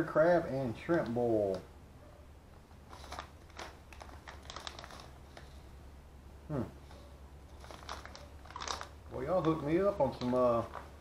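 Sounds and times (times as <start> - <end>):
plastic packet crinkling: 2.8 - 5.6, 7.5 - 11.0
man's voice murmuring: 6.5 - 6.8.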